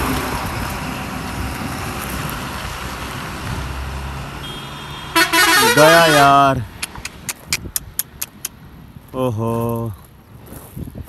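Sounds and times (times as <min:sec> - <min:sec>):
truck driving past: 0:00.0 - 0:07.5.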